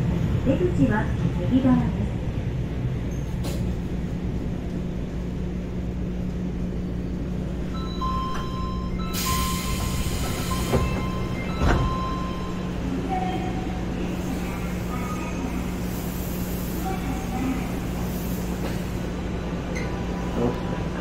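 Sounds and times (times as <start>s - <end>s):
subway train humming: 0.0s - 21.0s
clunks: 9.8s - 12.1s.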